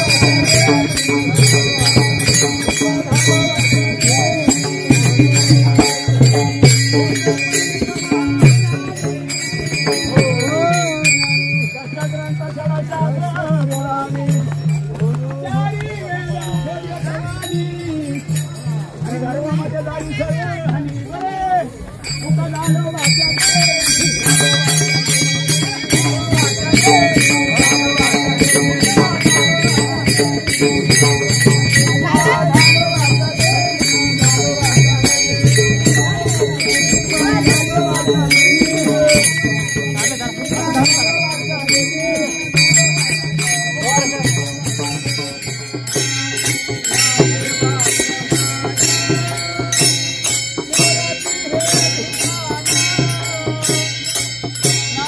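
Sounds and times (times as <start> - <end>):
hand cymbals ringing: 0.0 - 55.0
group singing: 2.6 - 5.6, 31.8 - 43.0.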